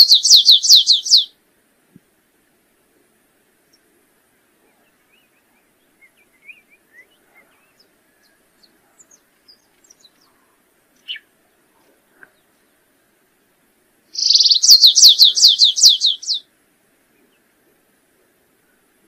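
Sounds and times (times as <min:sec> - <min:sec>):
finch chirping and twittering: 0:00.0 - 0:01.3, 0:14.2 - 0:16.4.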